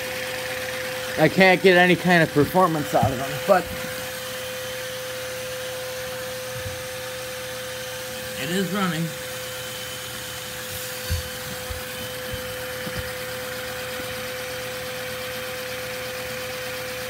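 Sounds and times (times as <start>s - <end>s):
vacuum cleaner whine and hiss: 2.3s - 14.9s.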